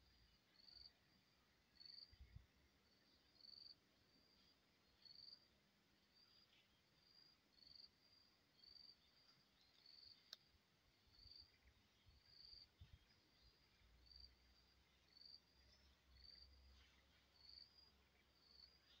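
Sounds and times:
insect chirping: 0:00.0 - 0:16.7, 0:17.4 - 0:19.0.

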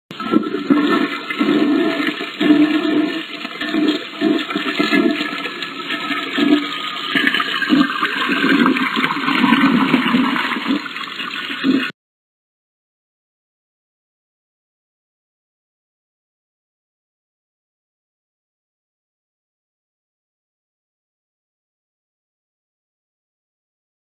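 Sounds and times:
toilet flushing: 0:00.1 - 0:11.9.

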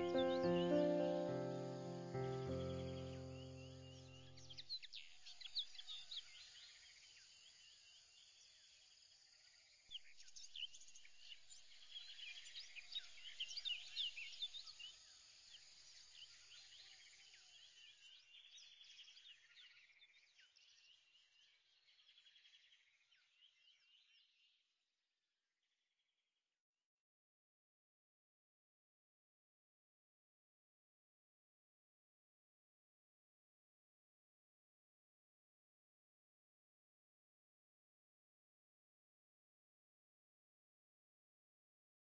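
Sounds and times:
small birds chirping: 0:00.0 - 0:24.6.

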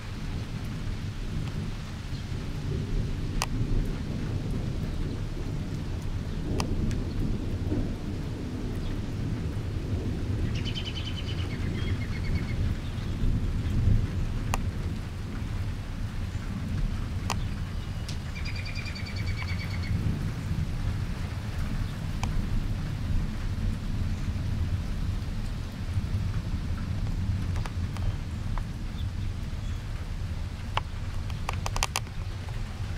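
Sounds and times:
thunder rumble: 0:00.0 - 0:32.9
songbird trilled call: 0:10.5 - 0:13.1, 0:17.4 - 0:20.0
sharp ticks: 0:30.7 - 0:32.6.

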